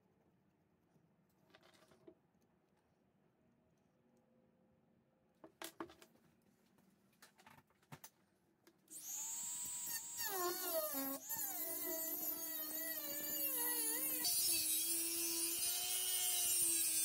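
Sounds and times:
rotary tool whine: 8.9s - 17.0s.

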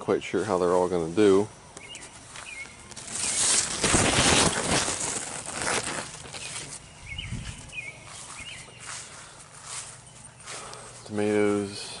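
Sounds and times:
faint bird chirps: 1.8s - 3.6s, 6.4s - 11.2s
leaves brushing microphone: 2.0s - 12.0s.

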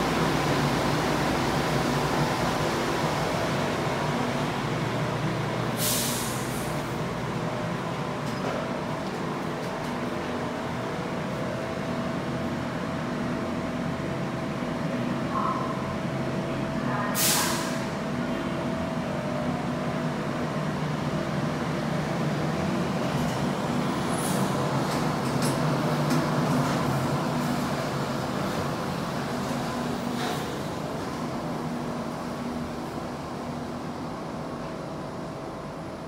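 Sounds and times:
light rail train electric hum: 0.0s - 36.0s
loud hiss of air: 5.8s - 6.9s, 17.2s - 18.0s.

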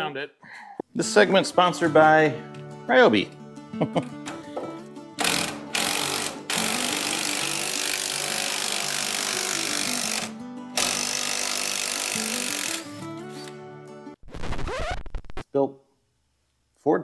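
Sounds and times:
background music: 0.9s - 14.2s
impact wrench hammering: 4.3s - 12.8s.

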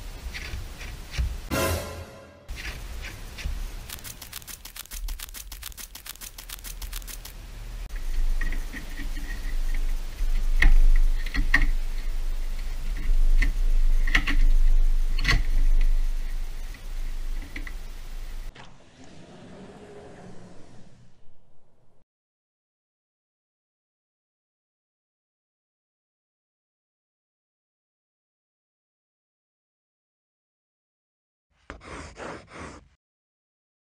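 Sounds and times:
low hum: 1.4s - 19.0s
fast run of clicks: 3.8s - 7.5s.

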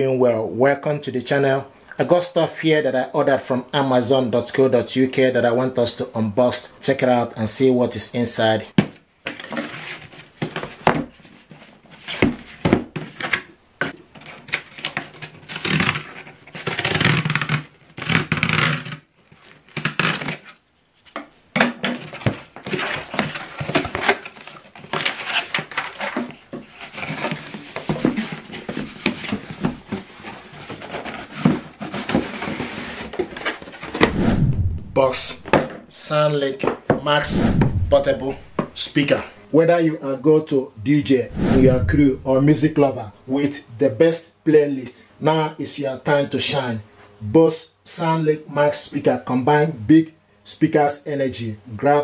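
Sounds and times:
cardboard flaps scraping and rustling: 9.4s - 21.3s, 21.9s - 35.6s, 37.2s - 38.8s
tape peeling: 14.8s - 20.6s
blade scoring packing tape: 15.4s - 19.1s, 19.7s - 20.5s.

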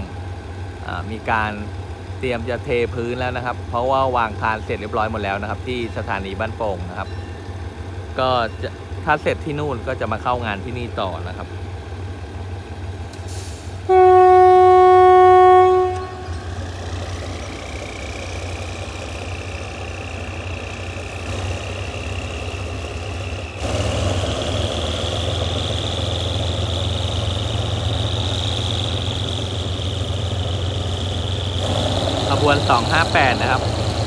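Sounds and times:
locomotive engine rumble: 0.0s - 34.0s
train horn: 13.9s - 16.6s.

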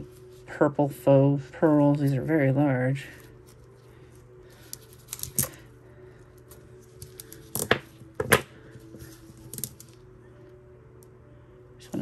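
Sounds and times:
pearl beads clicking together: 4.6s - 5.6s.

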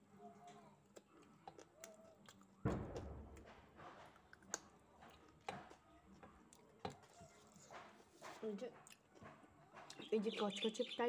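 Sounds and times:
chewing and biting chicken: 0.3s - 7.6s
sharp thump: 2.6s - 4.0s.

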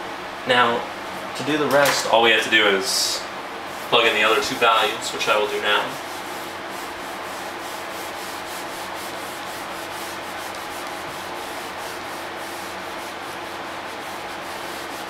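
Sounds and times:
eraser rubbing on whiteboard: 4.0s - 15.0s.

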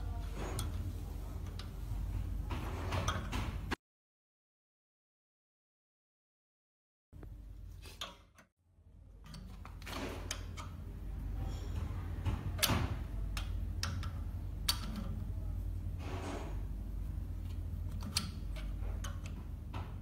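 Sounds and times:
extruder motor hum with ticking: 7.2s - 20.0s.

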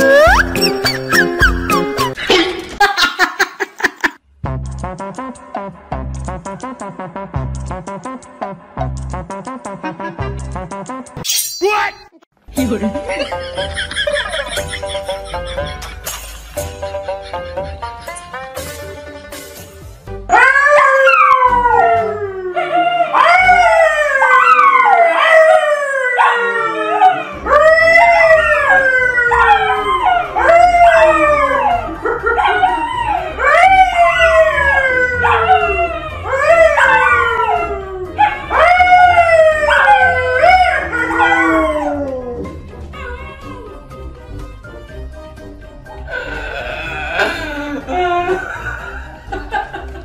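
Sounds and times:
man howling: 20.3s - 43.8s, 46.1s - 49.0s
dogs howling: 20.3s - 44.0s.

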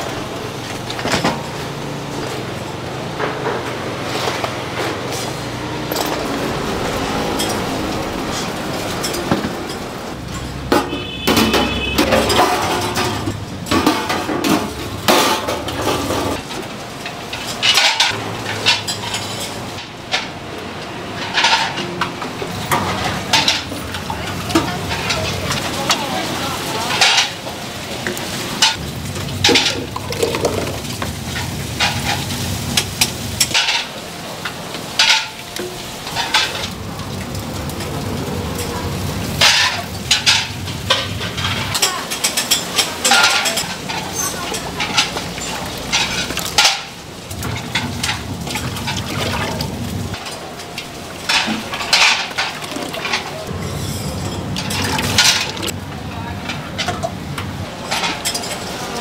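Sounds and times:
metal utensils and pans clanking: 0.0s - 36.9s, 37.6s - 59.0s
frying sizzle: 0.0s - 59.0s.

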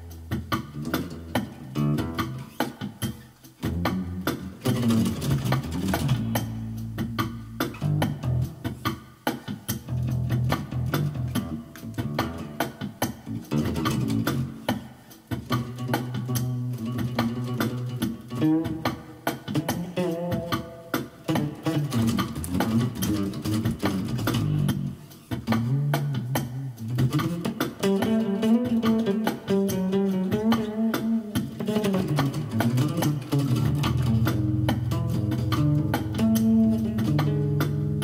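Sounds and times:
electric bass line: 0.0s - 9.0s, 9.7s - 38.0s
steady drum beat: 0.0s - 38.0s.

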